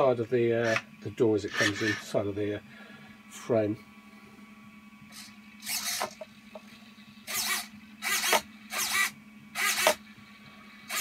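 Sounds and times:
low servo buzz: 0:00.5 - 0:02.4, 0:03.3 - 0:11.0
servo motors whirring: 0:00.6 - 0:00.8, 0:01.4 - 0:02.2, 0:05.1 - 0:06.2, 0:07.2 - 0:10.1.

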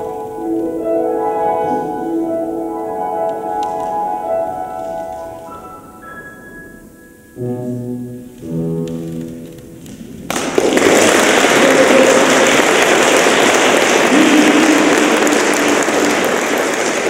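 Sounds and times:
audience applause: 0:10.3 - 0:17.0.

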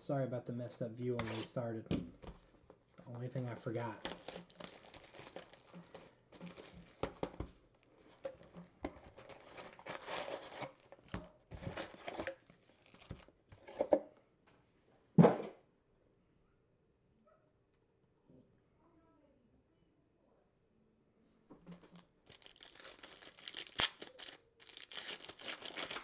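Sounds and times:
plastic wrap crinkling and tearing: 0:01.2 - 0:01.6, 0:03.1 - 0:13.3, 0:22.0 - 0:26.0
cardboard box handled and opened: 0:04.0 - 0:13.9.

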